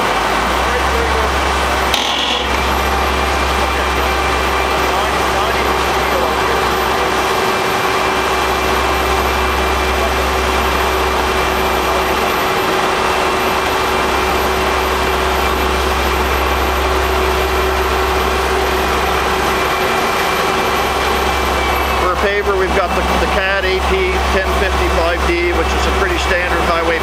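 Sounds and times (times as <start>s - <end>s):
heavy diesel machinery drone: 0.0s - 27.0s.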